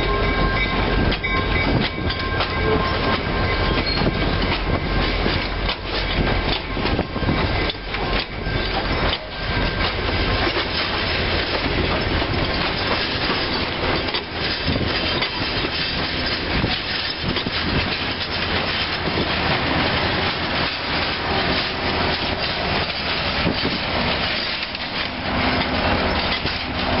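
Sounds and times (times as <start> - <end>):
train wheels clattering over rail joints: 0.0 - 27.0.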